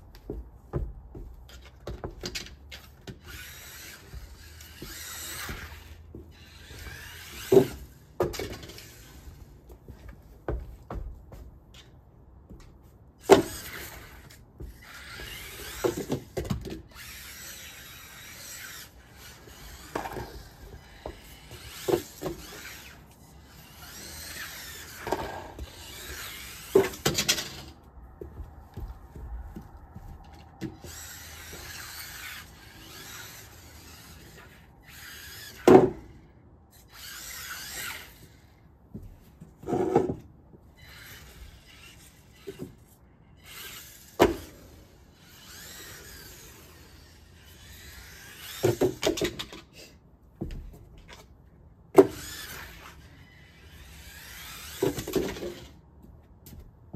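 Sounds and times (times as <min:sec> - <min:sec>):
electric motor whining: 0:30.0 - 0:35.7.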